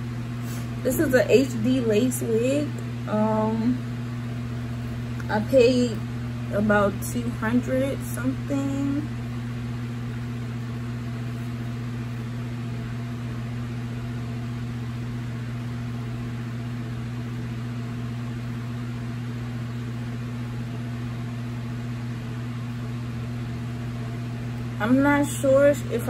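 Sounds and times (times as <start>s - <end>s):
low hum: 0.0s - 26.0s.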